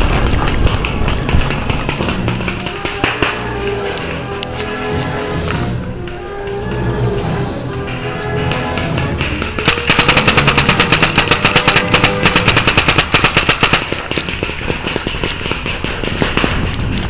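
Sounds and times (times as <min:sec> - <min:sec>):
paintball marker firing: 0:00.0 - 0:04.1, 0:07.9 - 0:17.0.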